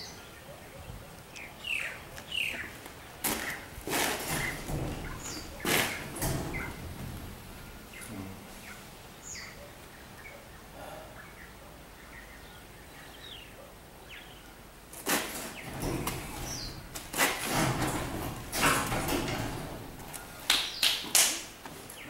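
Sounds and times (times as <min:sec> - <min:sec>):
metal scraping and clanking: 0:03.4 - 0:08.9, 0:15.0 - 0:20.5.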